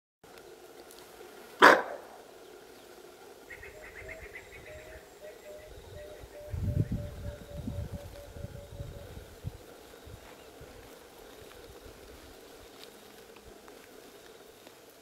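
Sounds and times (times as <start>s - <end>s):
antelope alarm bark: 1.6s - 2.2s.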